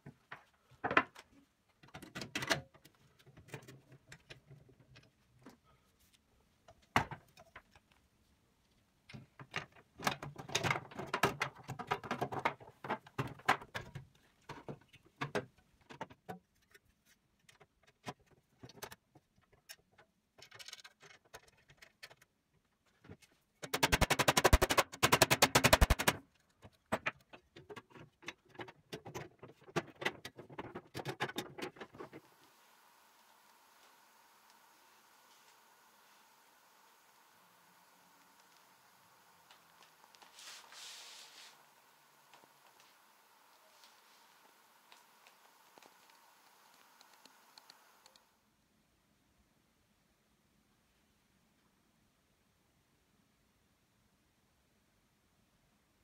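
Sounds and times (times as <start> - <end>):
thin metal clicks and rattles: 15.8 - 22.7
rapid clicking: 23.7 - 26.2.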